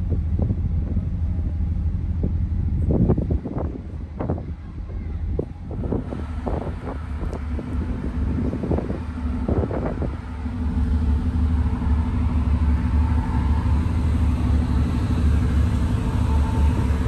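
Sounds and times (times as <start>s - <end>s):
rush of wind: 0.0s - 17.0s
ship machinery rumbling: 0.0s - 17.0s
droning tones: 5.9s - 17.0s.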